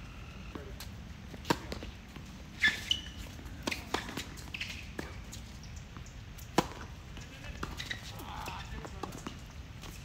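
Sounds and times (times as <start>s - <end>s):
shoe squeal: 2.6s - 5.0s, 7.7s - 8.2s
tennis racket hitting ball: 6.5s - 6.9s.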